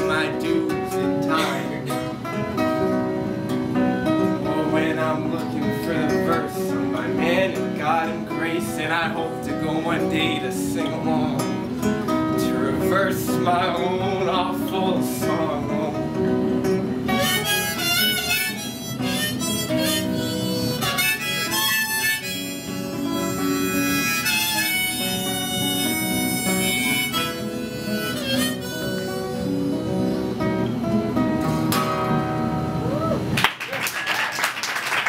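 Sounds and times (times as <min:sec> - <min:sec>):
strummed acoustic guitar: 0:00.0 - 0:33.4
harmonica playing a melody: 0:17.0 - 0:31.0
applause: 0:33.4 - 0:35.0.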